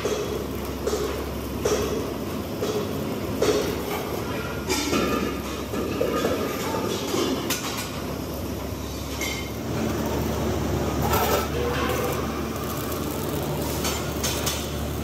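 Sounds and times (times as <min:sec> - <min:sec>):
arc welding crackle: 0:00.0 - 0:15.0
low machine hum: 0:07.9 - 0:15.0.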